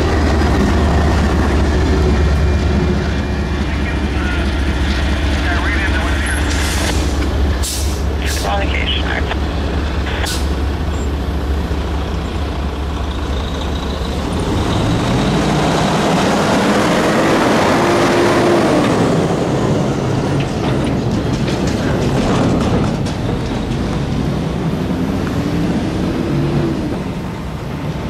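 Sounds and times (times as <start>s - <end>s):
locomotive diesel engine: 0.0s - 28.0s
train wheels clicking over rail joints: 20.0s - 25.4s.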